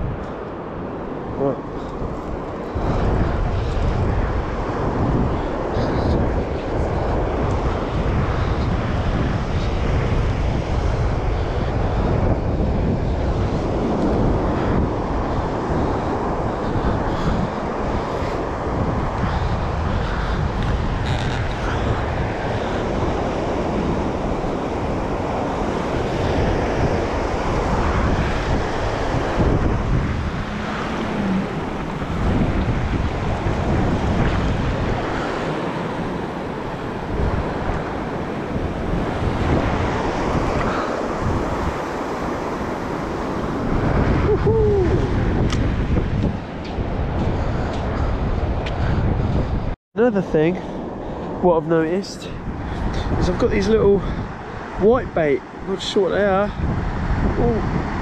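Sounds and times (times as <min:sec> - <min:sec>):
surf breaking on beach: 0:00.0 - 0:58.0
wind buffeting microphone: 0:00.0 - 0:58.0.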